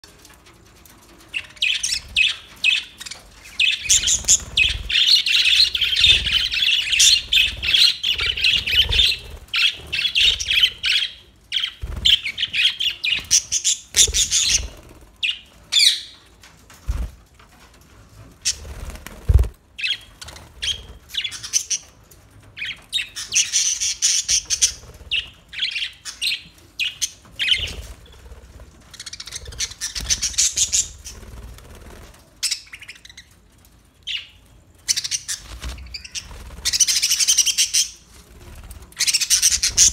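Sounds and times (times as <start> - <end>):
budgerigars chattering and chirping: 1.7 - 16.0, 39.0 - 39.9.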